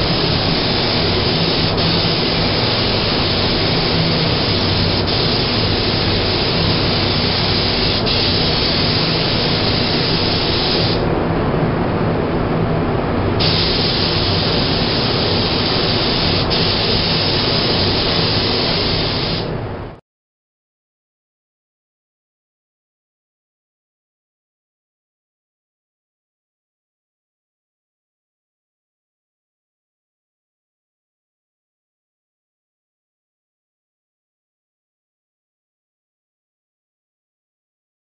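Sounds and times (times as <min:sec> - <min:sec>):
spray gun hissing: 0:00.0 - 0:11.0, 0:13.4 - 0:19.5.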